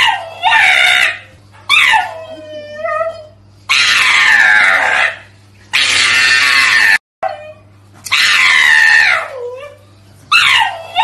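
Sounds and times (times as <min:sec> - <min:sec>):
dog screaming: 0:00.0 - 0:02.4, 0:03.7 - 0:07.4, 0:08.1 - 0:09.6, 0:10.3 - 0:11.0.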